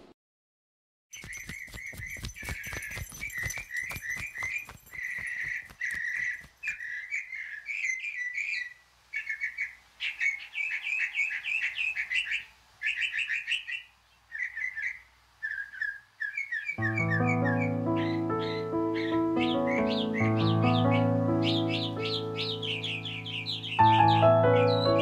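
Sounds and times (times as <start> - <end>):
songbirds chirping: 1.2 - 25.0.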